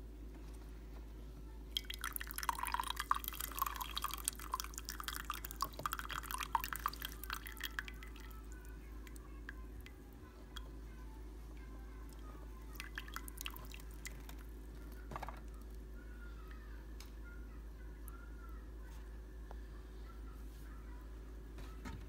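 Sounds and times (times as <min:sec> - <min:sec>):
coffee trickling into mug: 0:01.7 - 0:10.8, 0:12.1 - 0:15.6
water drips: 0:01.8 - 0:10.7, 0:12.1 - 0:14.5.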